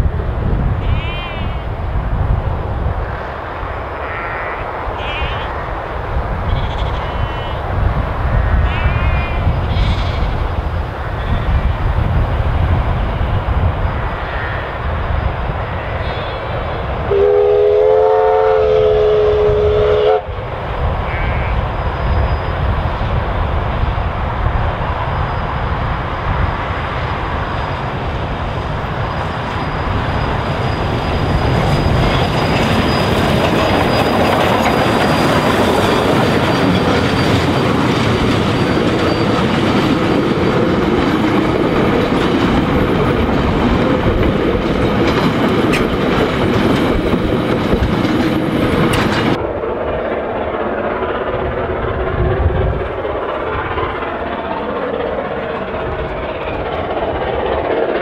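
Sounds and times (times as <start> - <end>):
train rumbling past: 0.0 - 58.0
steam locomotive whistle: 17.1 - 20.3
wheels clicking over rail joints: 27.7 - 51.0.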